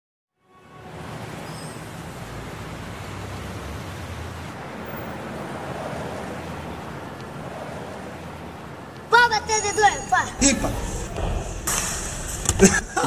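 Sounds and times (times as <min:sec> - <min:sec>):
steady rushing noise: 0:00.9 - 0:13.0
low rumble: 0:10.2 - 0:13.0.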